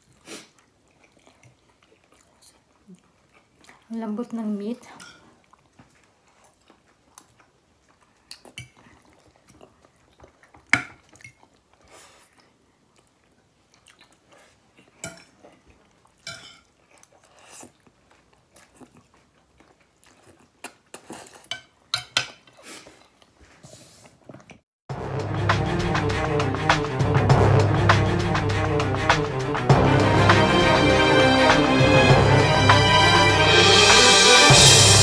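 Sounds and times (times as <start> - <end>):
chewing: 0.0 - 24.6
cutlery clinking on a plate: 15.0 - 15.3, 16.3 - 16.7, 21.4 - 22.5.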